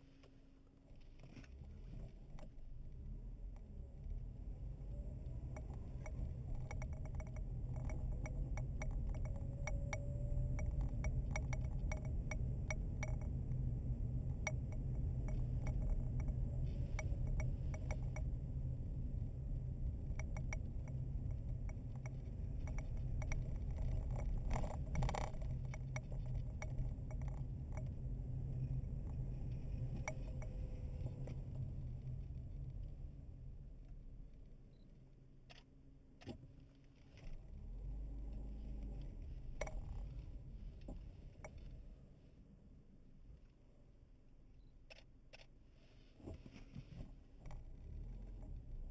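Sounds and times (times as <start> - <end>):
road and engine rumble: 0.0 - 48.9
small ticks and rattles: 5.4 - 18.4, 19.9 - 32.4, 39.2 - 41.7.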